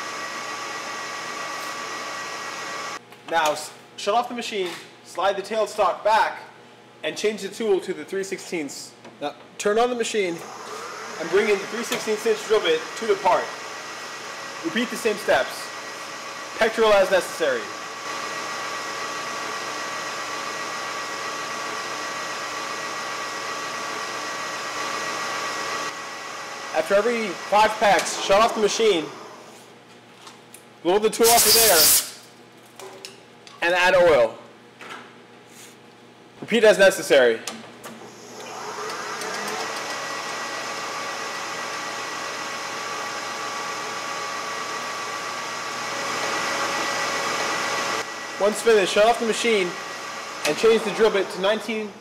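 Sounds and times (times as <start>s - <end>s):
metal lathe drilling: 10.4s - 15.8s, 38.2s - 51.5s.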